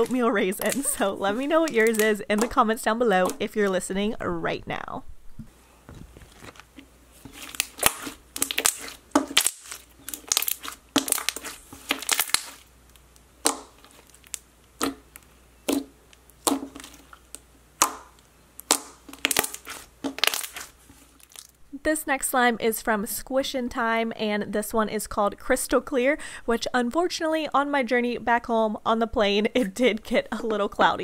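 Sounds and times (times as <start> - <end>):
slime clicking and popping: 7.4 - 12.6, 13.4 - 21.5.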